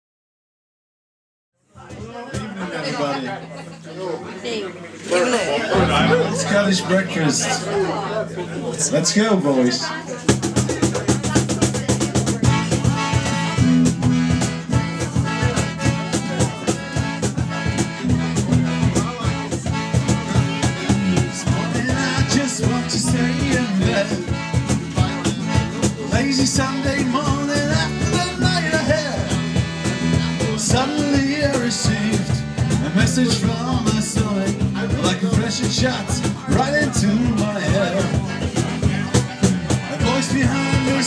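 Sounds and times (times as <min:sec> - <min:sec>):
folk-rock band playing: 0:04.4 - 0:41.0
man singing: 0:10.8 - 0:41.0.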